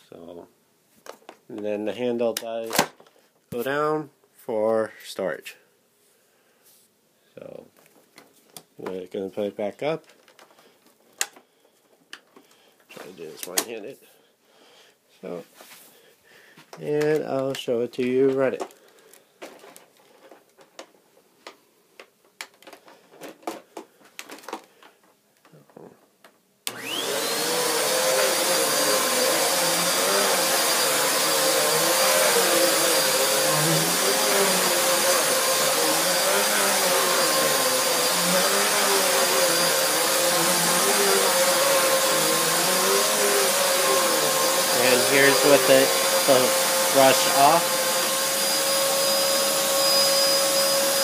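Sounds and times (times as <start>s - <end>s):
upright vacuum cleaner running: 26.7s - 51.0s.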